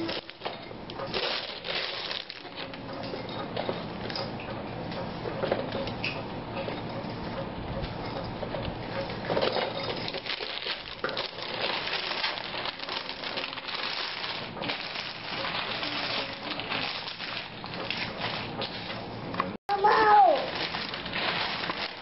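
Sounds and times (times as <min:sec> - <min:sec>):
wrapping paper crumpling and tearing: 0:00.0 - 0:00.5, 0:01.1 - 0:02.8, 0:10.1 - 0:18.8, 0:19.7 - 0:22.0.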